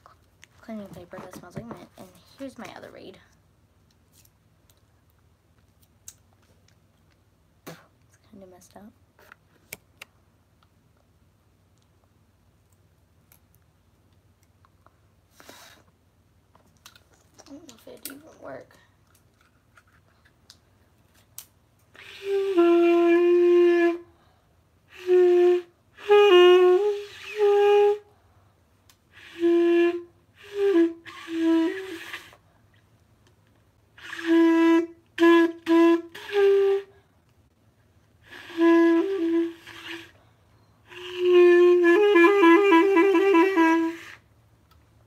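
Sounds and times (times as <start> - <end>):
clarinet trill: 22.0 - 24.1, 24.9 - 28.1, 29.1 - 32.4, 34.0 - 36.9, 38.2 - 40.2, 40.9 - 44.2
clarinet phrases: 40.9 - 44.2.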